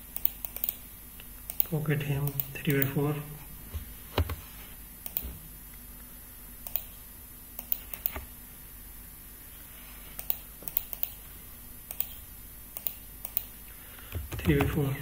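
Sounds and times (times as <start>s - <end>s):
computer keyboard and mouse clicks: 0.2s - 0.8s, 5.0s - 5.3s, 6.6s - 6.9s, 7.6s - 8.3s, 10.2s - 11.2s, 11.9s - 12.2s, 12.8s - 13.5s.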